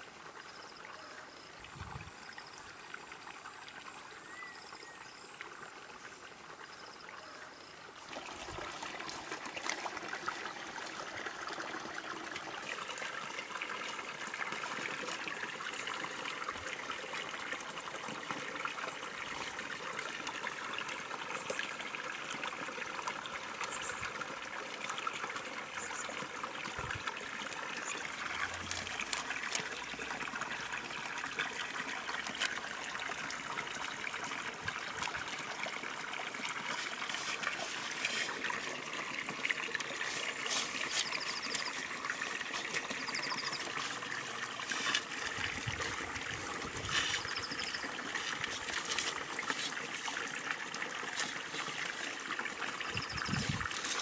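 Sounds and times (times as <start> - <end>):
running water trickling: 0.0 - 54.0
seed pods clicking and rustling: 28.4 - 29.7.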